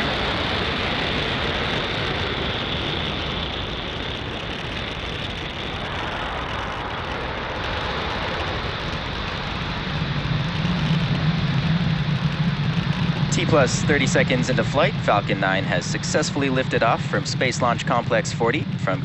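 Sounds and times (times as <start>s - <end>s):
rocket engine roar: 0.0s - 19.0s
low tone: 10.0s - 19.0s.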